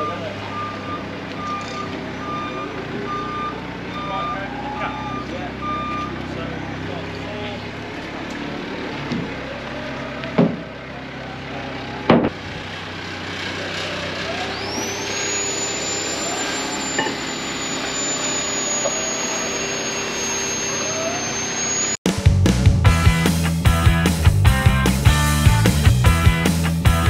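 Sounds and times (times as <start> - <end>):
forklift engine running: 0.0 - 27.0
thin high whine: 14.4 - 22.0
rock music: 22.0 - 27.0.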